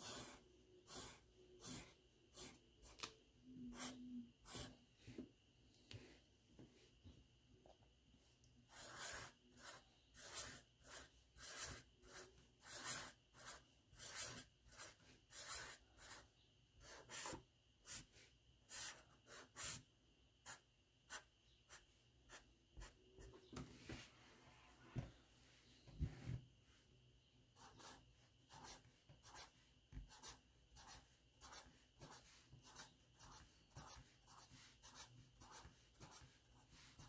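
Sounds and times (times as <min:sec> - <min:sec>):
marker scratching on paper: 0:00.0 - 0:03.0, 0:03.7 - 0:04.8, 0:08.7 - 0:18.1, 0:18.7 - 0:19.8, 0:27.6 - 0:37.0.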